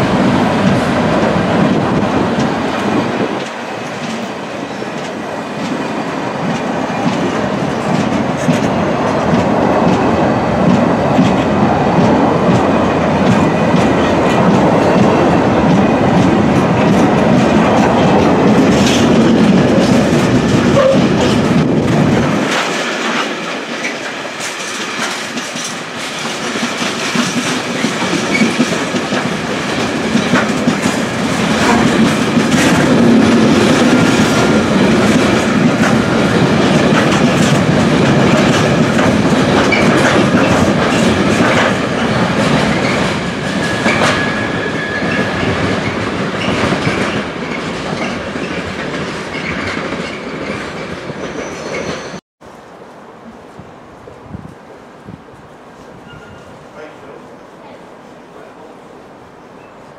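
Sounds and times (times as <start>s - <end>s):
train wheel rumble: 0.0s - 57.8s
wheels clicking over rail joints: 0.6s - 52.1s
faint wheel squeals: 56.0s - 56.6s.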